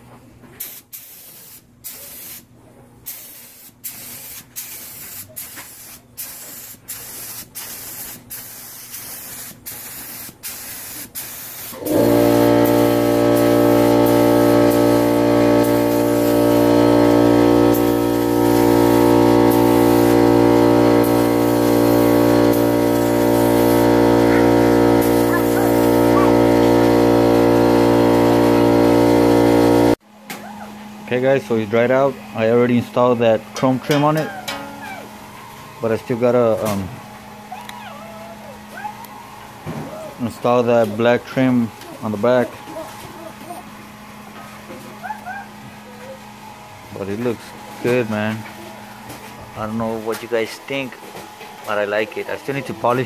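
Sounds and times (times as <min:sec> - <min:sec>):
spray gun hissing: 0:00.6 - 0:02.4, 0:03.1 - 0:30.0
motor humming: 0:11.8 - 0:30.0.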